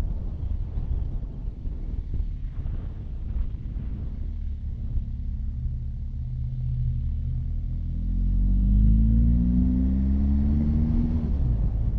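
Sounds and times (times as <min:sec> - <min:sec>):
wind rumble on microphone: 0:00.0 - 0:11.9
motorcycle engine accelerating: 0:03.4 - 0:11.9.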